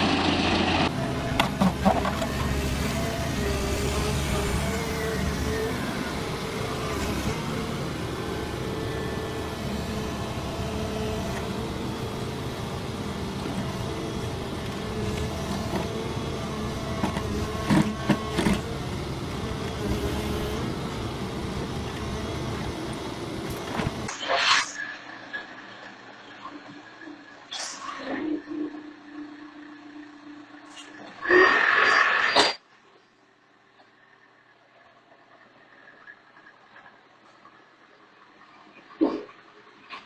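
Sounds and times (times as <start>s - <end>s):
excavator diesel engine running: 0.0s - 24.1s.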